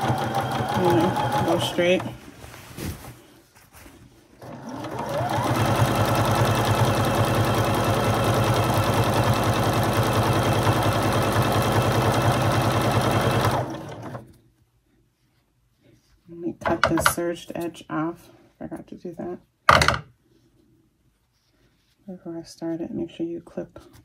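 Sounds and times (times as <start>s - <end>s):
sewing machine stitching: 0.0s - 2.2s, 4.4s - 14.3s.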